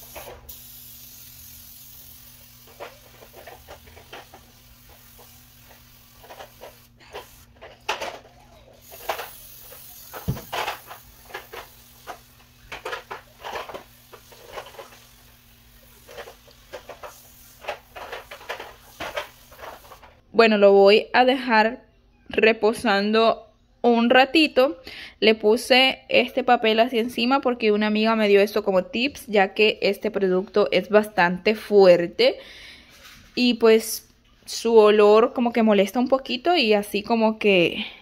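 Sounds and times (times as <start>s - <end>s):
aerosol can spraying: 0.0s - 7.6s, 8.8s - 20.1s.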